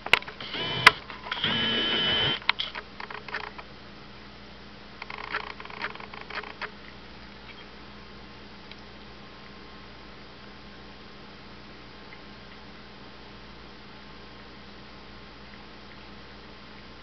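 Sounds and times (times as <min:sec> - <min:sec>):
faint steady hum: 0:00.0 - 0:17.0
cats eating and lapping water: 0:11.5 - 0:17.0.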